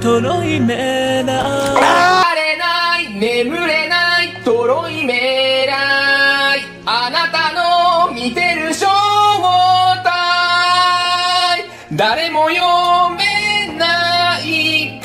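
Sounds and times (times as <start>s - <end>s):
person singing long notes: 1.2s - 2.3s.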